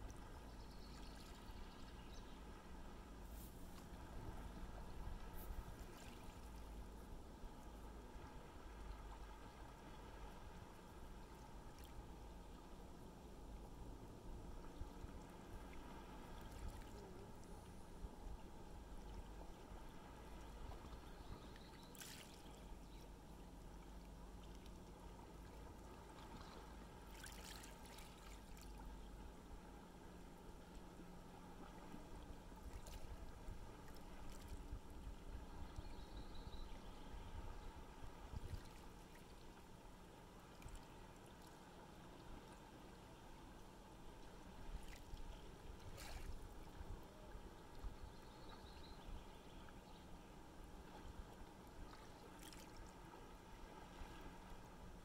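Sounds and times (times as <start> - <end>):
calm seawater lapping at shore: 2.4 - 13.2, 13.8 - 35.7, 36.5 - 55.0
soft water splash: 3.2 - 7.1, 15.5 - 17.5, 21.6 - 23.1, 24.4 - 28.9, 31.6 - 34.9, 44.5 - 46.8, 50.8 - 53.1.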